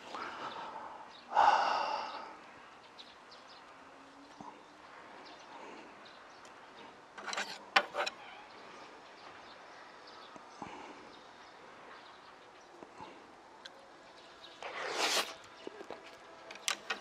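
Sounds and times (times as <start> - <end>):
buns pulled apart: 14.6 - 16.0.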